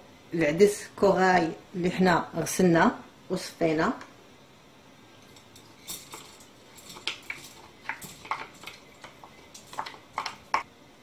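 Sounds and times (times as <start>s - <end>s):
wooden spoon scraping bowl: 5.5s - 10.6s.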